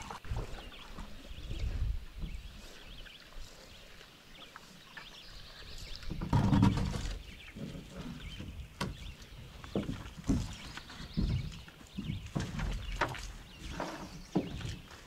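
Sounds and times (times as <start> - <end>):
birds chirping: 0.0 - 15.0
rustling and scraping: 6.0 - 15.0.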